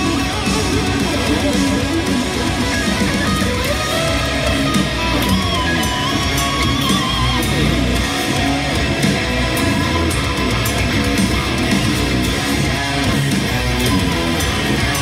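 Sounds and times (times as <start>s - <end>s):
bass: 0.0s - 15.0s
drums: 0.0s - 15.0s
heavy metal electric guitar riffing: 0.0s - 15.0s.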